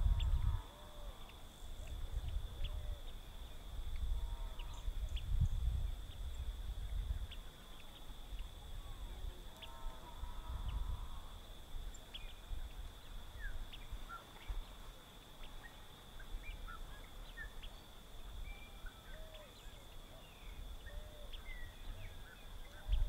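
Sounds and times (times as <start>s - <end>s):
high insect drone: 0.0s - 23.0s
lower arched bird calls: 4.1s - 6.4s, 15.4s - 23.0s.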